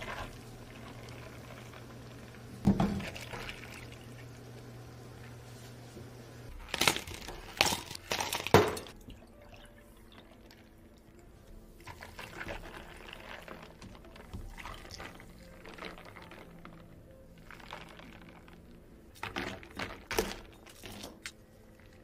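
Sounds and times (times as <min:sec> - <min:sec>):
liquid pouring into cups: 0:00.0 - 0:05.4, 0:06.8 - 0:16.7.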